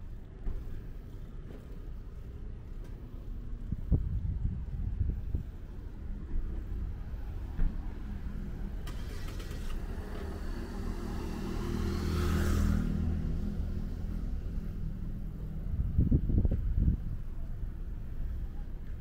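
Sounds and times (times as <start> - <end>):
car driving past: 8.0 - 15.4.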